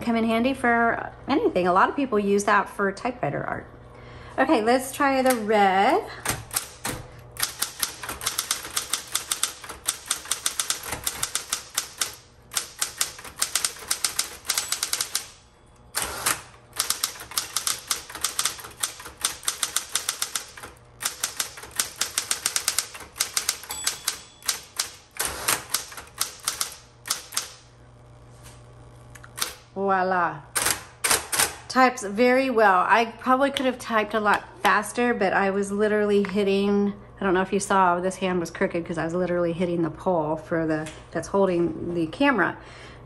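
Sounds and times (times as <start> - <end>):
typewriter motor hum: 5.0 - 29.7, 30.5 - 31.7
typewriter key strikes: 6.2 - 15.4, 16.0 - 27.6.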